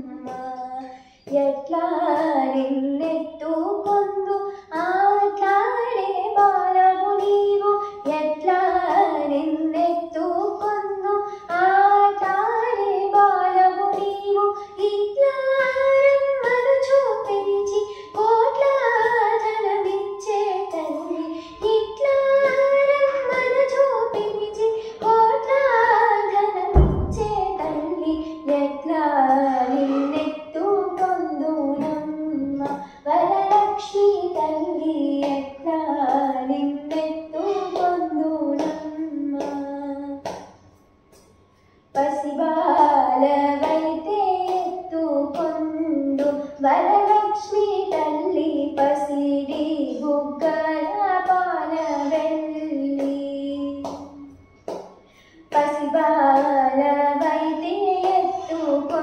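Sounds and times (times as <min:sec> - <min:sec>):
girl singing unaccompanied: 0:00.0 - 0:40.3, 0:42.0 - 0:54.3, 0:55.4 - 0:59.0
low thump: 0:26.8 - 0:28.5.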